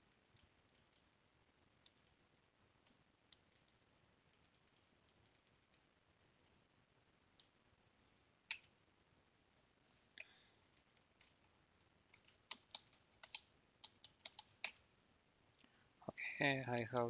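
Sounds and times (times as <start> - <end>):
keyboard keys clicking: 12.1 - 14.8.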